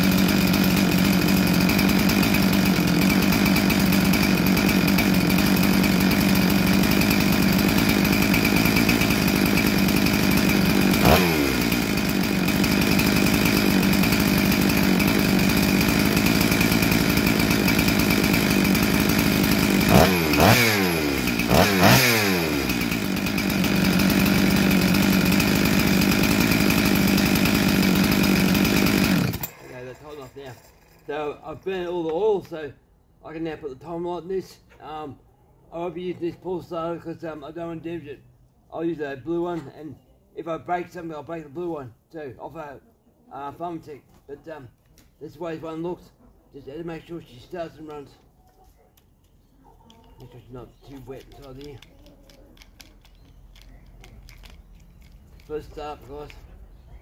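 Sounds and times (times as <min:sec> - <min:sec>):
chainsaw engine revving: 0:00.0 - 0:31.5, 0:52.6 - 0:57.0
chainsaw engine idling: 0:00.0 - 0:32.5, 0:50.0 - 0:57.0.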